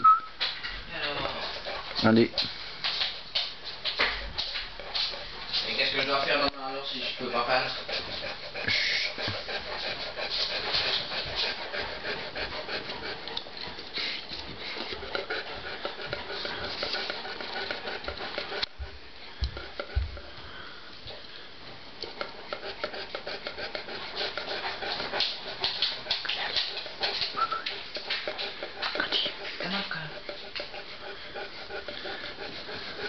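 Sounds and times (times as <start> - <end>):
dog panting: 0.4 - 33.0.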